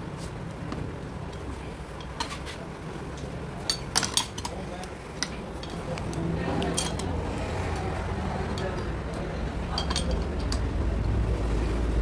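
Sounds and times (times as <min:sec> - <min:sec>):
metal tools clinking: 0:09.7 - 0:10.6
low hum: 0:10.6 - 0:12.0.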